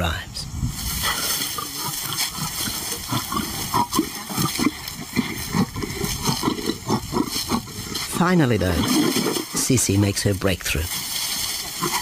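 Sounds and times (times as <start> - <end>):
lion growling and snarling: 1.0 - 9.7, 11.5 - 12.0.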